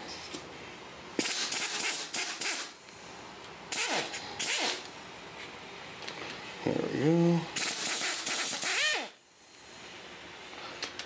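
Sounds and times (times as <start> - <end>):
pneumatic impact wrench: 1.2 - 2.8, 3.7 - 4.9, 7.6 - 9.2.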